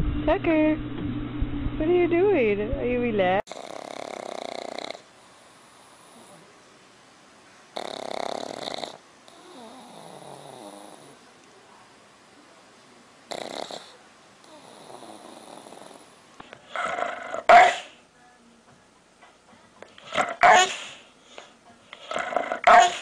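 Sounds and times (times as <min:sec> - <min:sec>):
dog snoring: 0:03.5 - 0:06.5, 0:07.8 - 0:11.2, 0:13.3 - 0:17.9, 0:22.0 - 0:23.0
dog barking: 0:16.8 - 0:18.0, 0:20.1 - 0:21.0, 0:22.1 - 0:23.0.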